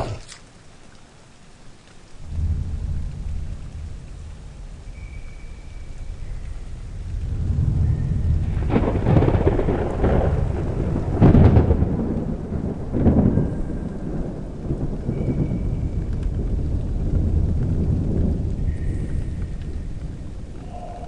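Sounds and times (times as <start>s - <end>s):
thunder rumbling: 2.2s - 21.0s.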